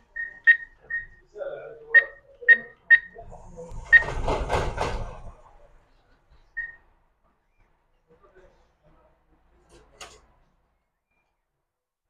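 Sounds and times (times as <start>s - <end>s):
atm keypad beeping: 0.1s - 1.2s, 1.9s - 3.2s, 3.8s - 4.1s, 6.6s - 6.8s
machine mechanism whirring and rattling: 3.4s - 5.3s.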